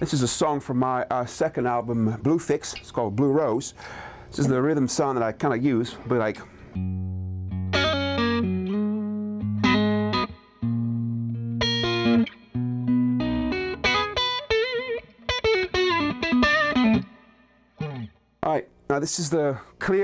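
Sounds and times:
electric blues guitar riff: 0:06.8 - 0:18.2.

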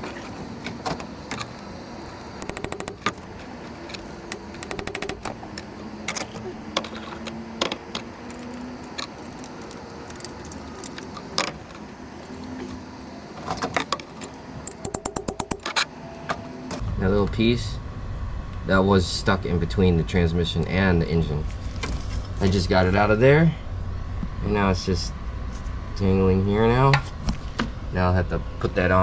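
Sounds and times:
rapid clicks: 0:02.4 - 0:03.2, 0:04.3 - 0:05.4.

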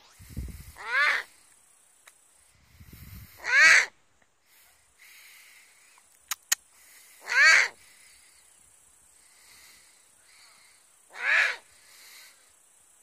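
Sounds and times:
owl giving harsh calls: 0:00.5 - 0:01.4, 0:03.1 - 0:03.9, 0:06.9 - 0:07.9, 0:11.1 - 0:12.2
sharp clicks: 0:06.0 - 0:06.7.

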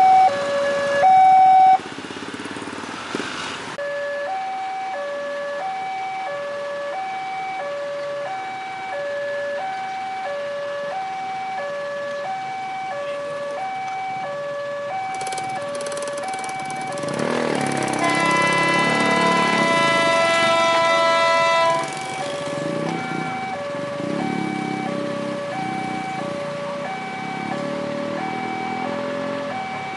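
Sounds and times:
two-tone level-crossing alarm: 0:14.9 - 0:29.9
fast ticking rattle: 0:15.1 - 0:18.2.

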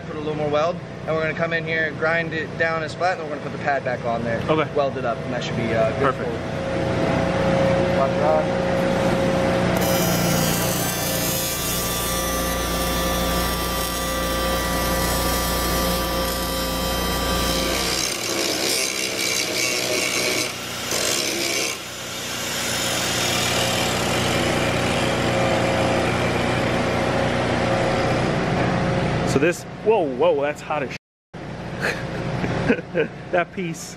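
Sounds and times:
arc welder buzzing: 0:08.6 - 0:28.3
angle grinder grinding metal: 0:09.7 - 0:27.2.

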